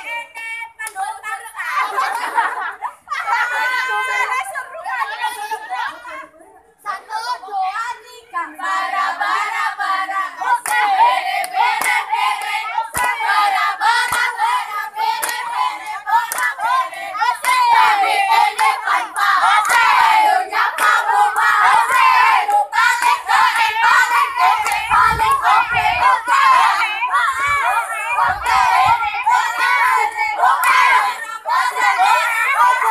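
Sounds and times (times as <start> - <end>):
girls chanting a cheer: 0.0 - 2.4, 3.2 - 6.3, 6.9 - 32.9
hand claps: 10.6 - 10.9, 11.8 - 13.2, 14.0 - 14.3, 15.2 - 15.5, 16.3 - 16.6, 17.4 - 17.7, 19.6 - 19.9.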